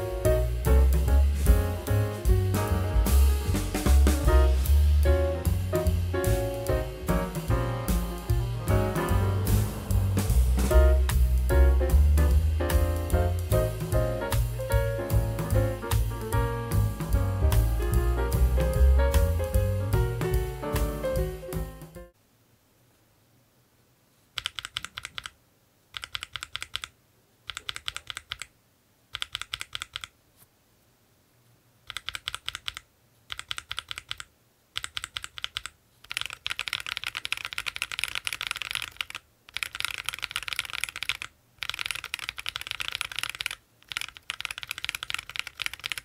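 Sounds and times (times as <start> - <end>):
mechanical keyboard typing: 24.4 - 28.5, 29.1 - 30.2, 31.8 - 46.0.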